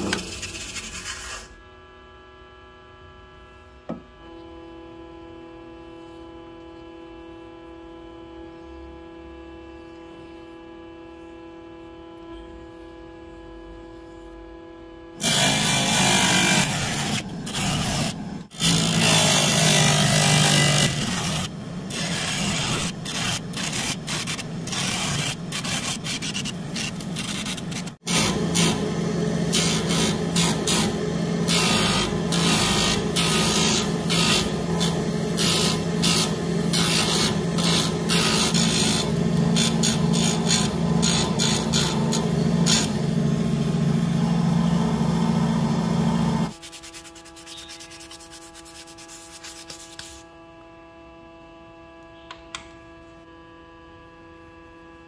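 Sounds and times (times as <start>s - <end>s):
saw blade scraping plastic: 0.0s - 1.6s, 15.2s - 43.0s, 46.5s - 50.3s
electric motor hum: 15.2s - 46.6s.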